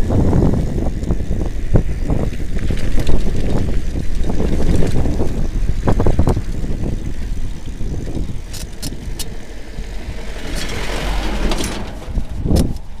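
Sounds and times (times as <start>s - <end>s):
bike rolling on dirt track: 0.0s - 13.0s
wind rumble on camera: 0.0s - 13.0s
car engine passing: 7.5s - 13.0s.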